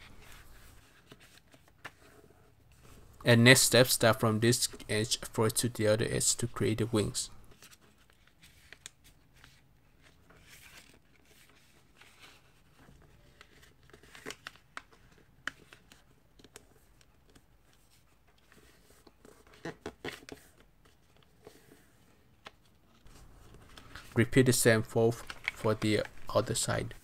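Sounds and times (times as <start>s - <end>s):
paper rustling and crinkling: 17.3s - 27.0s
crisp paper crackles: 23.0s - 27.0s.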